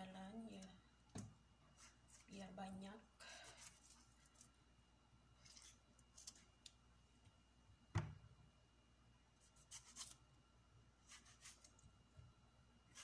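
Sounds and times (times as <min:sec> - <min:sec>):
knife thump on cutting surface: 0:07.9 - 0:08.2
knife scraping cuts: 0:09.4 - 0:10.2, 0:11.0 - 0:11.8.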